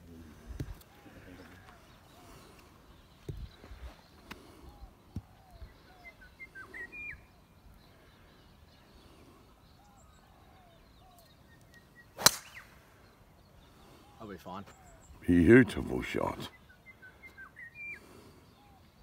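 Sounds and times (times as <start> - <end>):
birds chirping: 0.0 - 19.0
golf club striking ball: 12.2 - 12.6.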